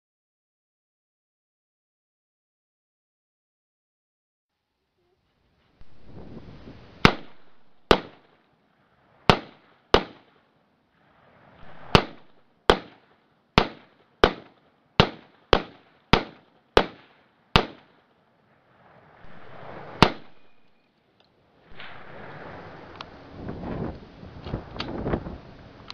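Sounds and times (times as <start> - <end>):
rifle shots: 7.0 - 8.4, 9.3 - 10.5, 11.6 - 18.1, 19.2 - 20.8, 21.7 - 22.9.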